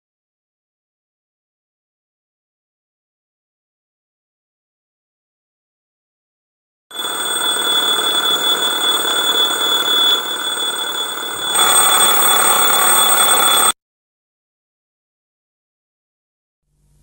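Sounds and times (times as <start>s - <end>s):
alarm clock ringing: 6.9s - 13.8s.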